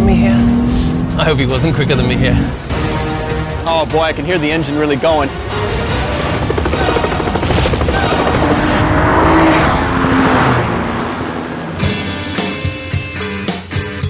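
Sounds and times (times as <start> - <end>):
helicopter rotor chop: 3.8 - 12.9
car engine revving past: 7.9 - 12.8.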